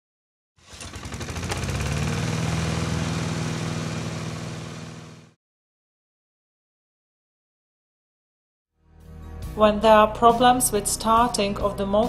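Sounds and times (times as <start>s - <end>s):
engine running with pulsing beat: 0.7s - 5.4s.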